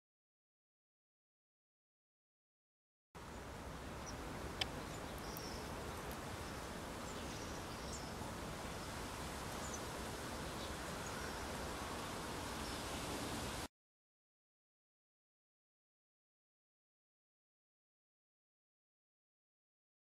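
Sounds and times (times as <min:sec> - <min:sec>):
outdoor background noise: 0:03.2 - 0:13.7
faint high bird chirps: 0:04.0 - 0:11.6.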